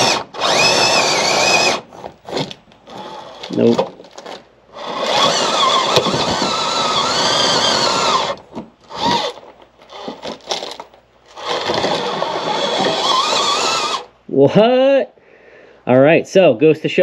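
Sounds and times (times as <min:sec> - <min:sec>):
small electric motor whining: 0:00.0 - 0:03.6, 0:04.2 - 0:14.1.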